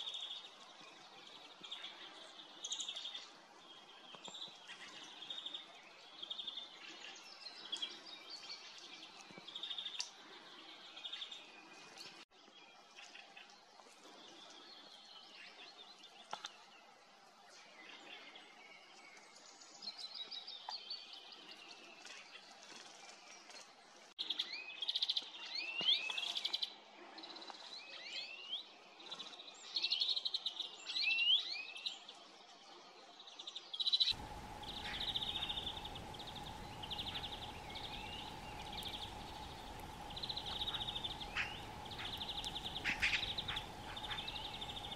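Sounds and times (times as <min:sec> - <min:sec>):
songbirds chirping and trilling: 0:17.5 - 0:44.9
loud sweeping bird calls: 0:34.1 - 0:44.9
low background hum: 0:34.1 - 0:44.9.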